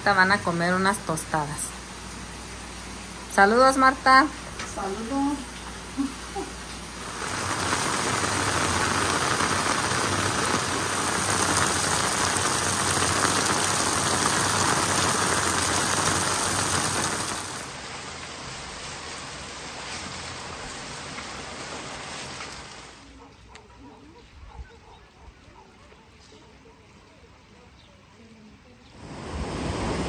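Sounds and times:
rain falling: 0.0 - 23.2, 29.0 - 30.0.

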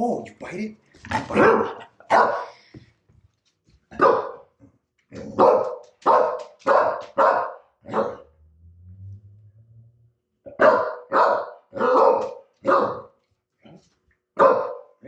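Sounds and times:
dog barking: 1.3 - 2.6, 3.9 - 4.5, 5.2 - 8.4, 10.5 - 13.2, 14.4 - 15.0.

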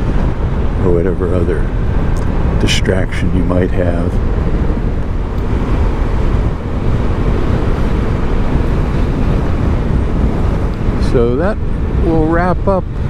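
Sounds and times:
road noise: 0.0 - 13.0
wind on microphone: 0.0 - 13.0.

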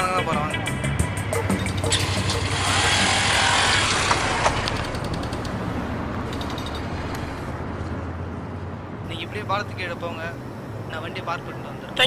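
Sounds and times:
motorcycle engine running: 1.7 - 5.7.

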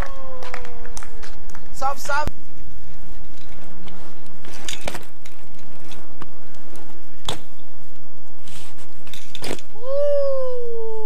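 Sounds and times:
wind and rolling noise: 0.0 - 11.0
bike clicks and knocks: 3.2 - 7.6, 9.0 - 9.7.

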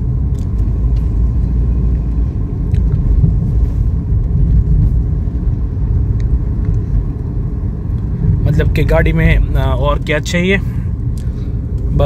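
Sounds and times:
car cabin rumble: 0.0 - 12.0.

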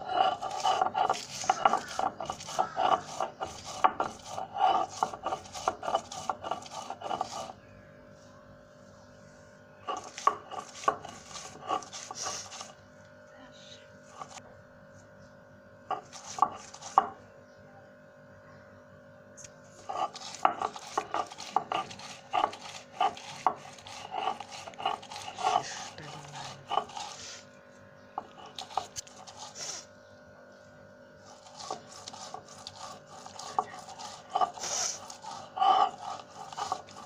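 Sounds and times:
stone roller grinding on stone: 0.0 - 7.7, 9.8 - 12.8, 14.0 - 14.4, 15.8 - 17.2, 19.7 - 27.5, 28.2 - 30.0, 31.2 - 37.0.

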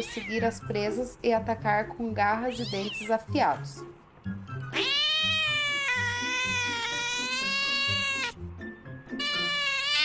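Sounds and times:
cat meowing: 0.0 - 0.6, 2.5 - 3.2, 4.7 - 8.4, 9.2 - 10.0.

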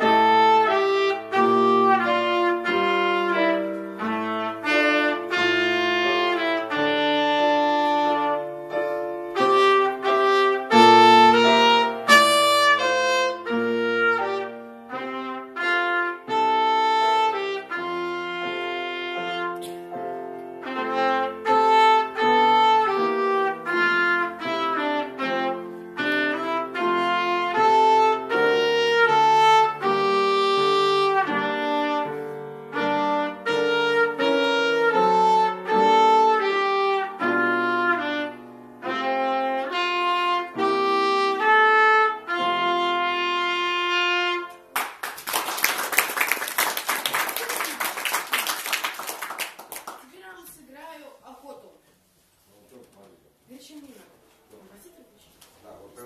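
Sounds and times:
trumpet melody: 0.0 - 44.8
piano accompaniment: 0.0 - 50.0
applause: 44.7 - 50.5.

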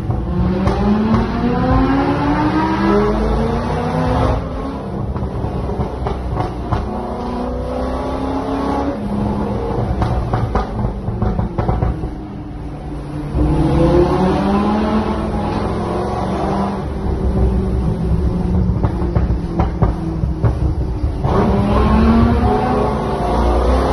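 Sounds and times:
sports car engines revving: 0.0 - 23.9
exhaust pops and crackles: 4.9 - 7.3, 9.7 - 12.4, 17.0 - 22.3.

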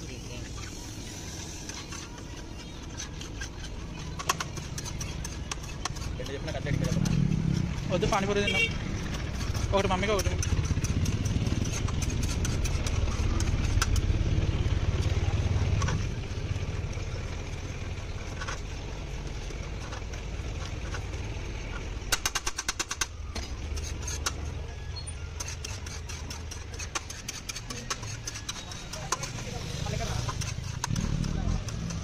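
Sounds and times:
metal spatula scraping on griddle: 0.0 - 14.1, 23.4 - 32.0
low vehicle engine rumble: 0.0 - 32.0.

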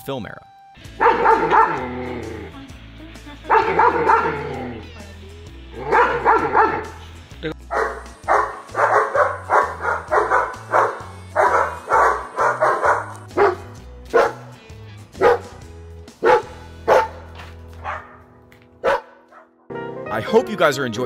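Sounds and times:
background music with bass: 0.0 - 21.0
dog barking: 1.0 - 2.0, 3.5 - 4.8, 5.8 - 7.0, 7.7 - 14.6, 15.2 - 15.6, 16.2 - 18.2, 18.8 - 19.6.

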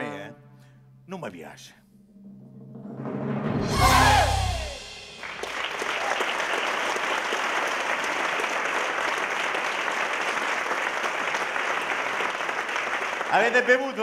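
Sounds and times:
audience applauding: 3.8 - 14.0.

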